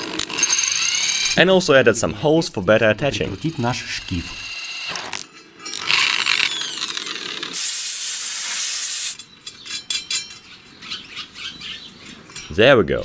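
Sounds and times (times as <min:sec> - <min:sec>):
electric drill spinning down: 0:00.0 - 0:01.4, 0:04.4 - 0:09.2
metal parts clinking: 0:00.0 - 0:01.4, 0:03.1 - 0:07.6, 0:08.9 - 0:10.6
steady loud hiss: 0:07.6 - 0:09.3.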